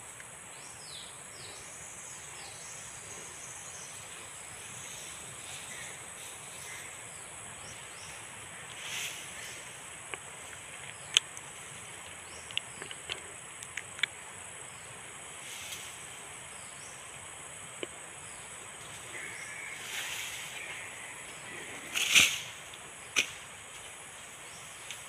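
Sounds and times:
faint hiss: 0:00.0 - 0:25.0
high insect drone: 0:00.0 - 0:25.0
rustle: 0:00.0 - 0:25.0
sharp clicks: 0:12.4 - 0:14.2.

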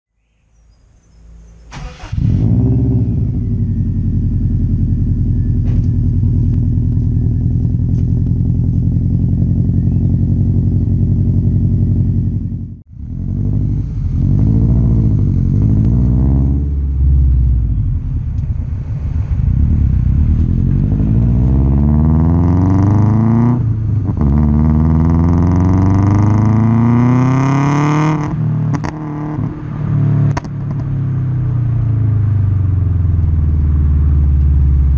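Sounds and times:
car engine revving: 0:01.6 - 0:34.9
exhaust pops and crackles: 0:04.6 - 0:10.1, 0:18.2 - 0:18.7, 0:19.3 - 0:21.5, 0:30.3 - 0:31.0.

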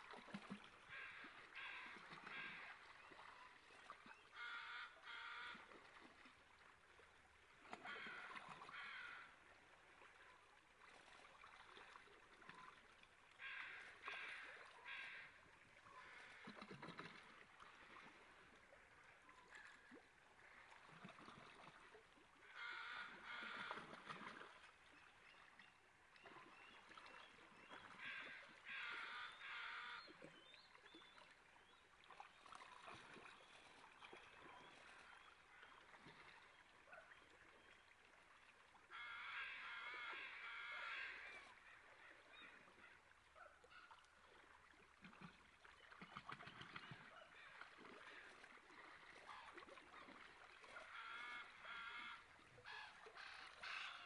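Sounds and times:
splashing in water: 0:00.0 - 0:04.2, 0:16.0 - 0:18.6, 0:19.3 - 0:22.2, 0:22.9 - 0:25.5, 0:29.8 - 0:37.8, 0:44.0 - 0:54.0
shallow river flowing: 0:00.0 - 0:54.0.

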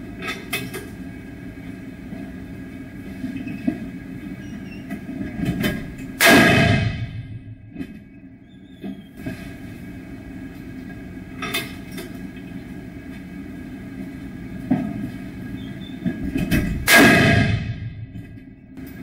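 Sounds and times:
steady low hum: 0:00.0 - 0:19.0
loud gunshot: 0:06.2 - 0:07.4, 0:16.8 - 0:18.1.

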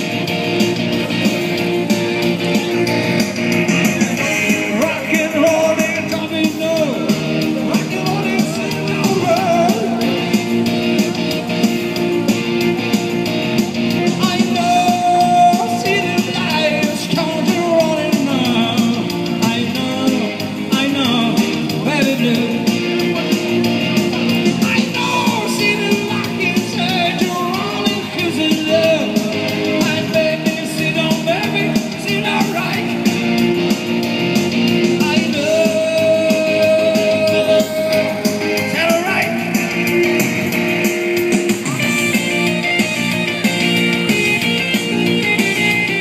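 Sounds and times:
electronic keyboard accompaniment: 0:00.0 - 0:46.0
man singing into a microphone: 0:03.8 - 0:10.4, 0:14.0 - 0:23.6, 0:24.5 - 0:33.0, 0:34.9 - 0:39.5.

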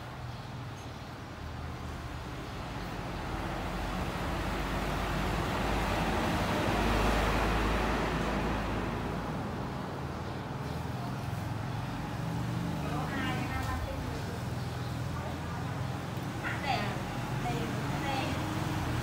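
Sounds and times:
vehicle passing by: 0:01.5 - 0:19.0.

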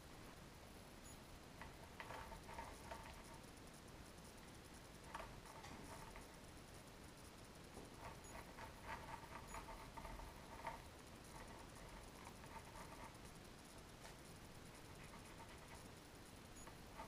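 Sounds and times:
pencil scratching on paper: 0:08.0 - 0:13.3.

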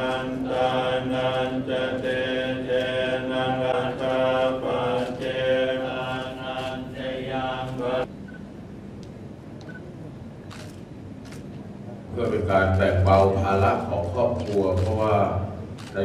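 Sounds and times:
monks chanting in a drone: 0:00.0 - 0:08.1.

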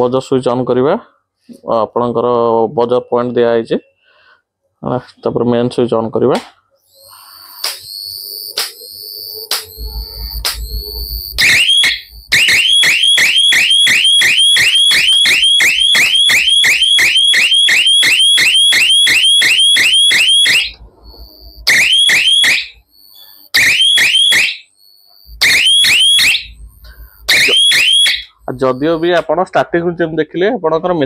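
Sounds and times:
electronic siren whooping: 0:06.9 - 0:29.1.

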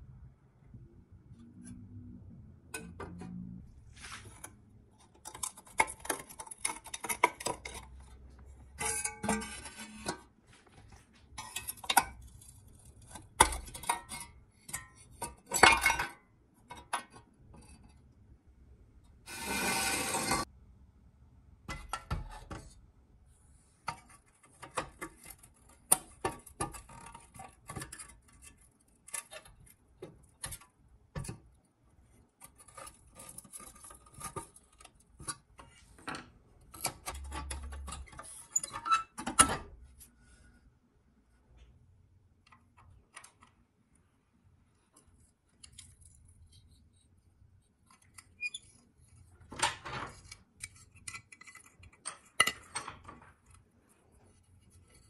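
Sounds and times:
metal rasping: 0:19.3 - 0:20.5.

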